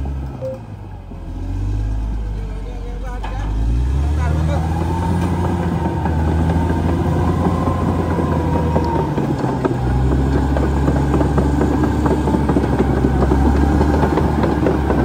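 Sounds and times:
bulldozer diesel engine: 0:00.0 - 0:15.0.

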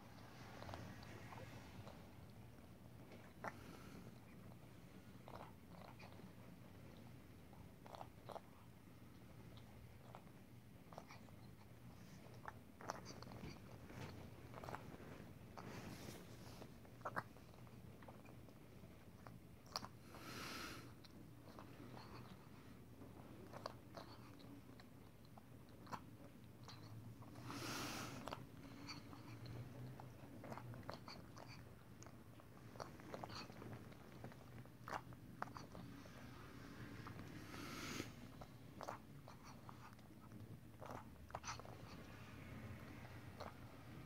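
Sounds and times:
cat lapping liquid: 0:00.1 - 0:44.0
soft hissing noise: 0:13.2 - 0:16.8, 0:19.8 - 0:22.9, 0:27.2 - 0:29.4, 0:32.6 - 0:40.3.

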